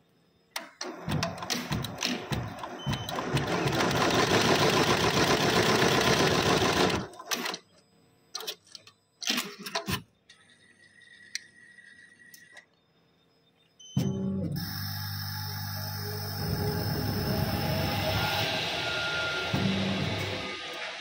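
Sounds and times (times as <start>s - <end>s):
laser cutting machine running: 14.6s - 21.0s.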